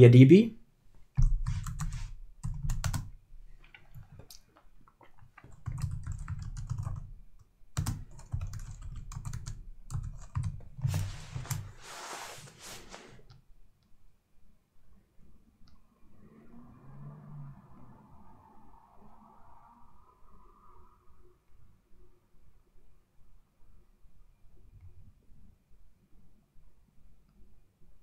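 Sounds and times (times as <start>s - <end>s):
computer keyboard typing: 1.2s - 4.4s, 5.1s - 11.7s.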